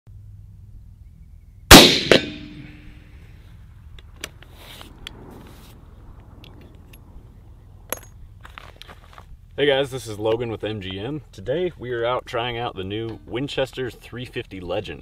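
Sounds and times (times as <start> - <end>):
rifle shot: 1.7 - 2.9
quieter ringing crack: 1.7 - 3.1.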